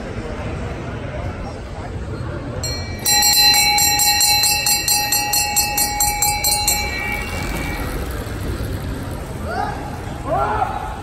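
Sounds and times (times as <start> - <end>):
brass handbell ringing: 2.6 - 8.0.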